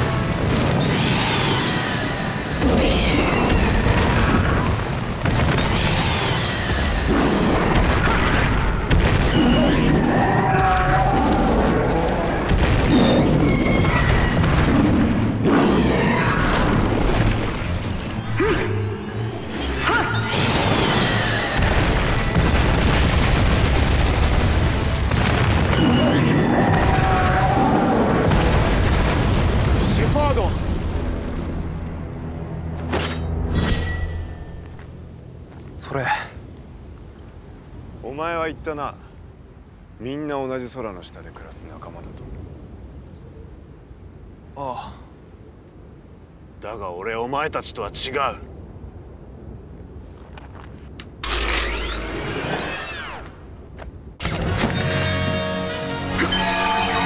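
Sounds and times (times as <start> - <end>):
rumble of explosions: 0.0 - 57.0
monster roars: 9.3 - 17.0, 25.8 - 28.3
rumbling crash of impacts: 20.3 - 27.2, 27.8 - 31.8
background music: 54.6 - 57.0.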